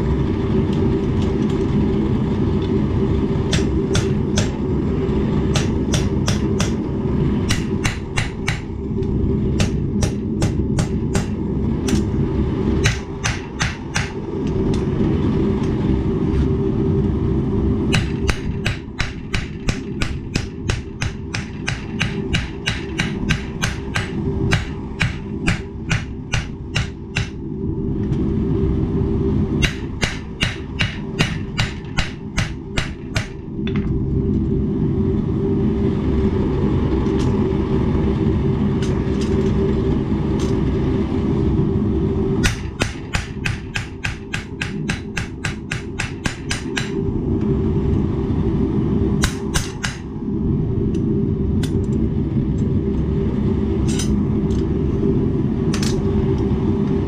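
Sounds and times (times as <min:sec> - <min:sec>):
hammer striking steel on anvil: 0:03.5 - 0:04.6, 0:05.5 - 0:06.8, 0:07.5 - 0:08.8, 0:09.6 - 0:12.0, 0:12.8 - 0:14.2, 0:17.9 - 0:27.4, 0:29.6 - 0:33.4, 0:42.4 - 0:47.0, 0:49.2 - 0:50.1.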